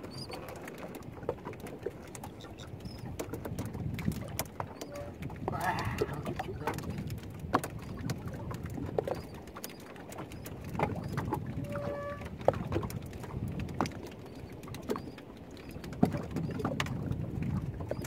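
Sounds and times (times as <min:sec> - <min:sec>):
water lapping against boat hull: 0:00.0 - 0:18.0
pitched squeak: 0:00.1 - 0:00.5, 0:11.6 - 0:12.3.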